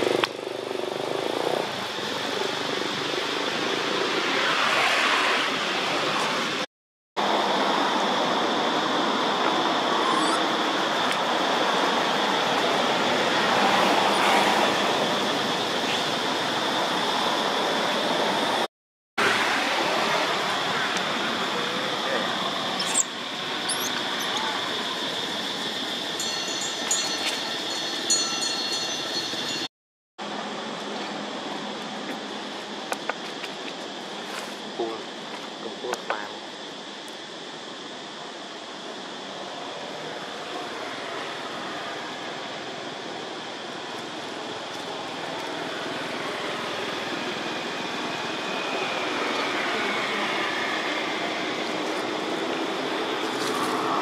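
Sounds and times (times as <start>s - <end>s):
outdoor background hiss: 30.2s - 54.0s.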